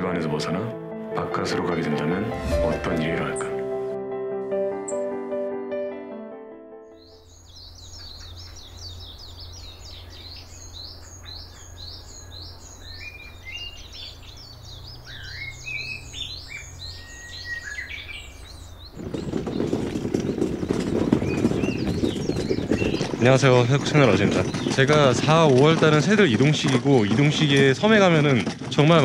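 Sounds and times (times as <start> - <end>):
small birds chirping and singing: 6.9 - 29.0.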